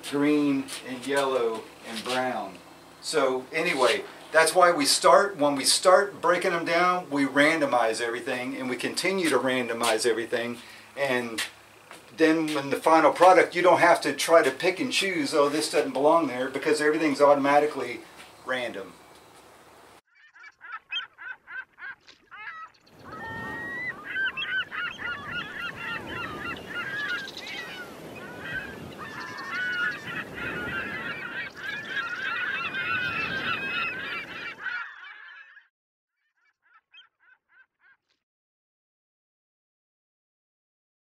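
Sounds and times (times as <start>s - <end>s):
flock of birds calling: 0.0s - 9.8s, 20.2s - 35.7s.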